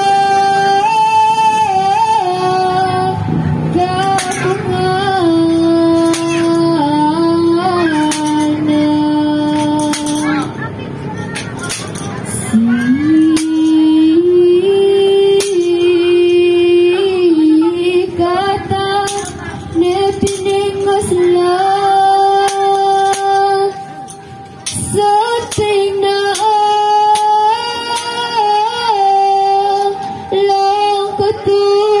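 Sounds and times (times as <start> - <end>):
woman singing long notes: 0.0 - 10.6, 12.0 - 32.0.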